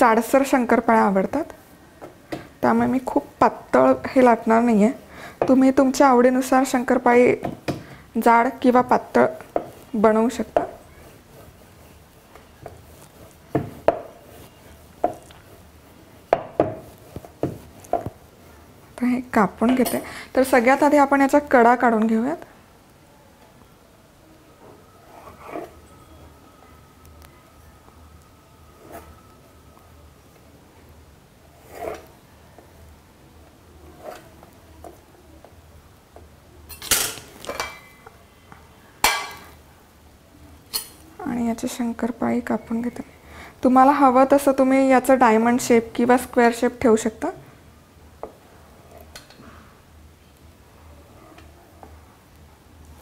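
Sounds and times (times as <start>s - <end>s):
rolling pin rolling dough: 0.1s - 19.8s, 24.6s - 26.4s, 31.4s - 36.3s.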